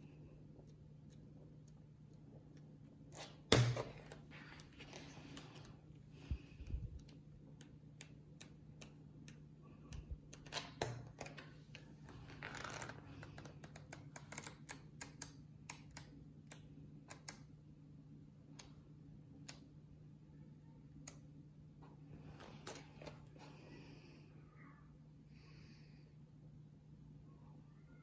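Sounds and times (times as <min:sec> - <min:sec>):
faint low hum: 0:00.0 - 0:28.0.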